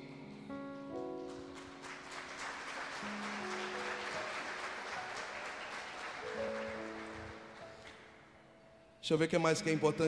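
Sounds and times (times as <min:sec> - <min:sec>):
audience applauding: 0:00.8 - 0:08.1.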